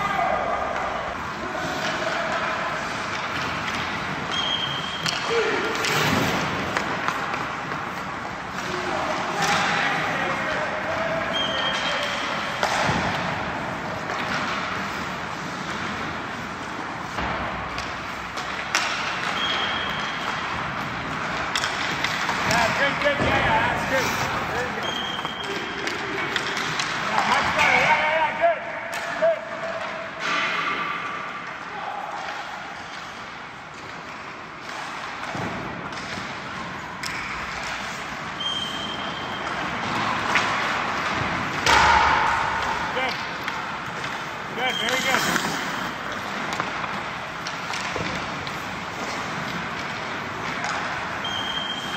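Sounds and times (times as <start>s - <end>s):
hockey sticks and pucks clacking: 0.0s - 51.9s
skates scraping on ice: 0.8s - 28.0s, 42.7s - 51.9s
stick clacking on puck: 16.7s - 23.1s, 39.4s - 51.4s.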